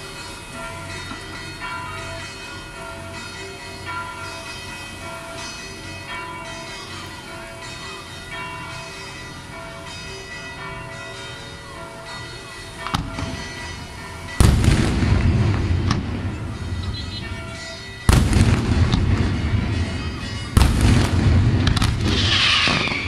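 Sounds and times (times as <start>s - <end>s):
church bells ringing: 0.0s - 23.0s
fireworks shells bursting: 12.8s - 23.0s.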